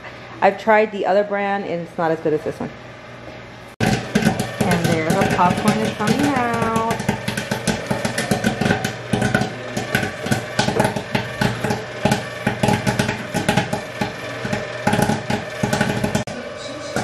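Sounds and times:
machine humming: 1.8 - 17.0
popcorn popping: 3.8 - 17.0.

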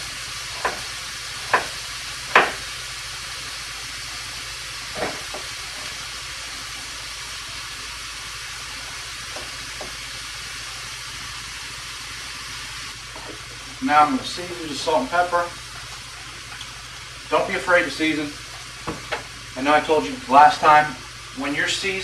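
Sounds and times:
meat frying sizzle: 0.0 - 22.0
sharp knocks: 2.3 - 2.6.

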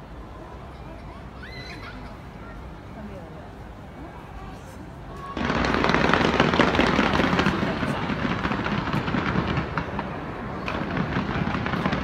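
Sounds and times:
fireworks crackling: 5.4 - 12.0.

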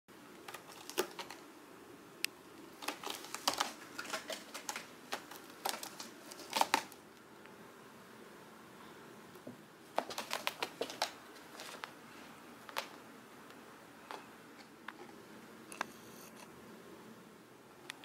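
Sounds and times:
cat claws scratching rope post: 0.4 - 1.4, 2.8 - 7.0.

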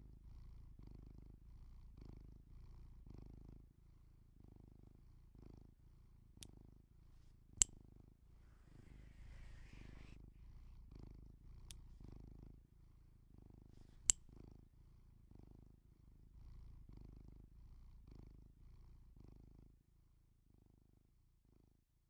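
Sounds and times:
faint low pulsing rumble: 8.2 - 12.1.

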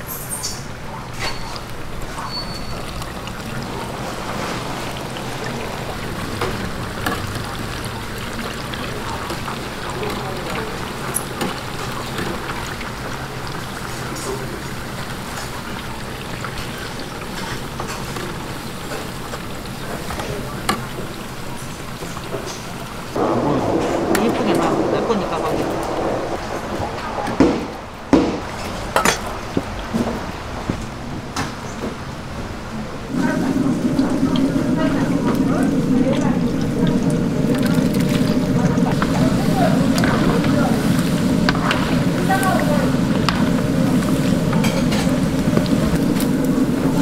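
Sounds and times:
oil sizzling in deep fryer: 0.0 - 23.2, 25.0 - 47.0
steady background noise: 0.0 - 47.0.

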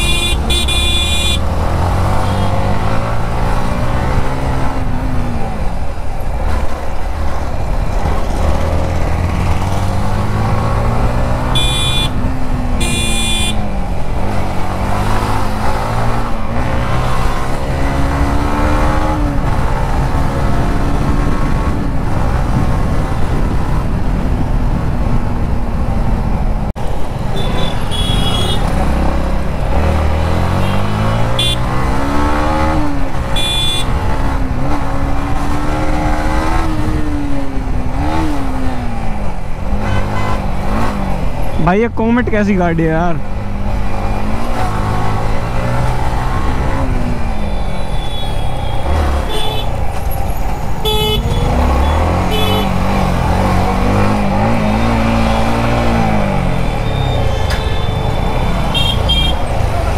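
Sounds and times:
horn toots: 0.0 - 1.4, 11.4 - 12.2, 12.8 - 13.6, 27.4 - 28.8, 30.5 - 31.8, 33.3 - 33.9, 39.8 - 40.5, 47.4 - 49.8, 50.8 - 52.9, 56.6 - 59.5.

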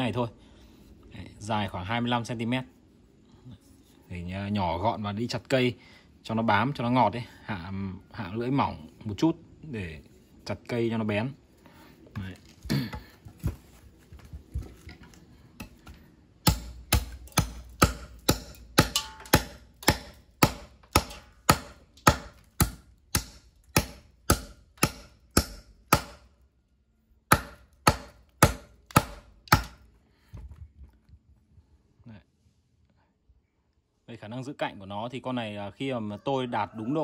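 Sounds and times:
knife chopping into wood: 15.6 - 26.3, 27.3 - 29.8.

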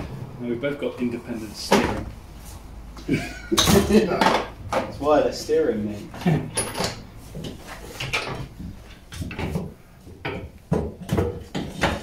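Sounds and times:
metal tools clinking and knocking: 6.4 - 7.1.

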